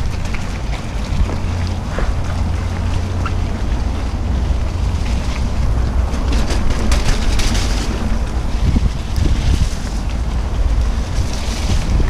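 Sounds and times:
bike rolling over ground: 0:00.0 - 0:12.0
wind buffeting microphone: 0:00.0 - 0:12.0
short rattles and rustles: 0:05.0 - 0:12.0.

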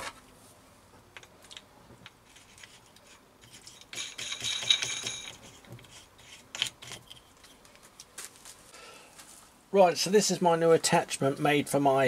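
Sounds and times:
steel rattling and scraping: 0:02.1 - 0:07.7.

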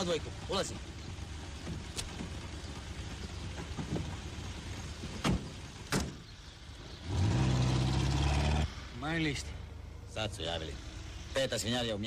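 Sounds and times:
car engine idling: 0:00.0 - 0:07.0.

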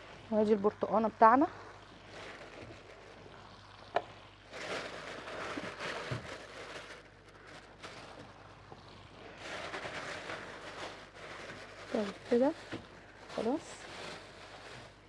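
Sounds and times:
food preparation rustling and handling: 0:02.0 - 0:03.4, 0:04.5 - 0:15.0.

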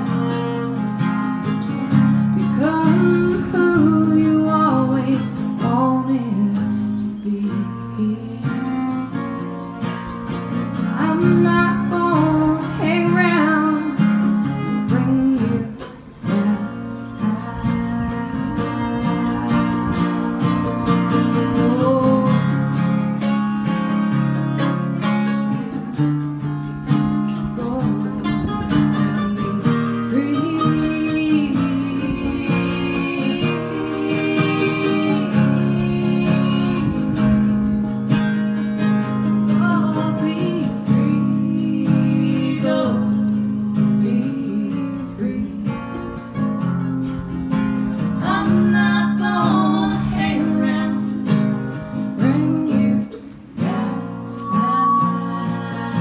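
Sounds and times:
bowed fiddle: 0:00.0 - 0:05.4, 0:07.9 - 0:42.2
mandolin: 0:00.0 - 0:56.0
strummed acoustic guitar: 0:00.0 - 0:56.0
women singing in harmony: 0:02.4 - 0:09.0, 0:10.9 - 0:14.0, 0:14.8 - 0:22.6, 0:29.0 - 0:37.5, 0:39.4 - 0:46.1, 0:48.1 - 0:56.0.

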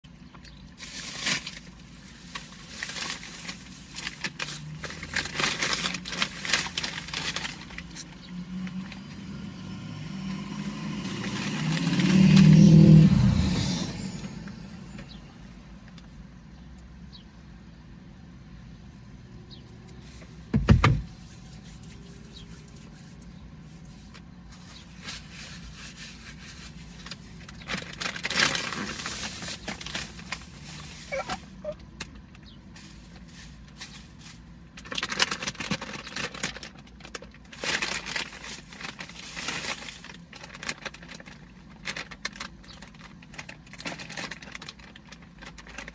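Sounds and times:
rustling and handling noises: 0:00.3 - 0:09.4, 0:19.9 - 0:45.9
vehicle passing by: 0:06.6 - 0:15.8.

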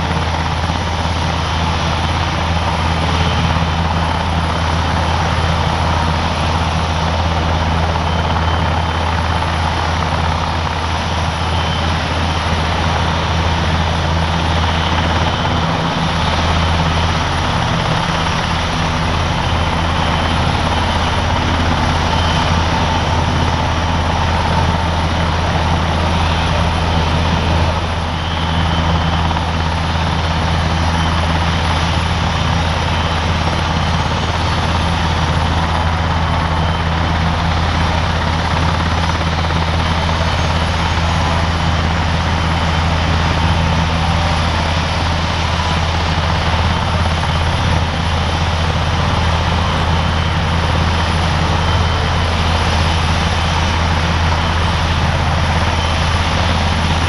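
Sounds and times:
helicopter rotor drone: 0:00.0 - 0:57.0
turbine whine: 0:00.0 - 0:57.0.

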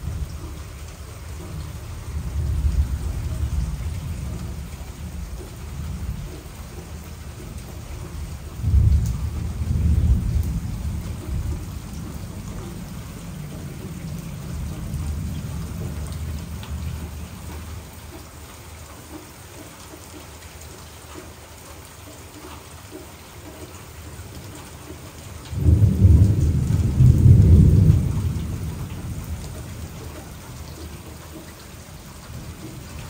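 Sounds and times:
thunder rumbling: 0:00.0 - 0:18.0, 0:25.5 - 0:31.0
steady rain falling: 0:00.0 - 0:33.0.

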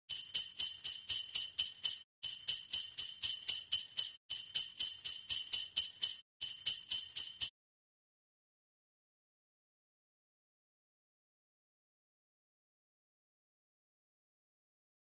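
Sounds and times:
jingle bells shaken: 0:00.1 - 0:07.5.

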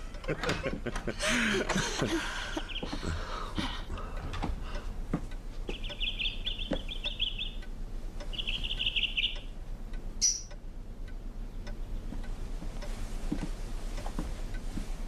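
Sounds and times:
lovebirds chattering trills: 0:02.5 - 0:03.3, 0:05.6 - 0:09.6, 0:10.2 - 0:10.6.

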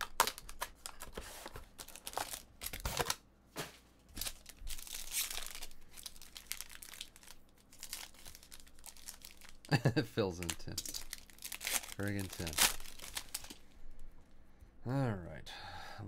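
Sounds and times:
paper and foil rustling and ripping: 0:00.0 - 0:03.2, 0:04.2 - 0:13.6.

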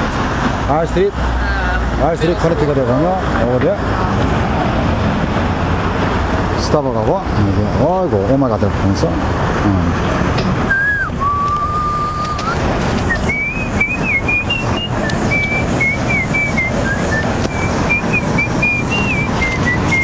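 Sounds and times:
street traffic noise: 0:00.0 - 0:20.0
person whistling a tune: 0:10.7 - 0:20.0.

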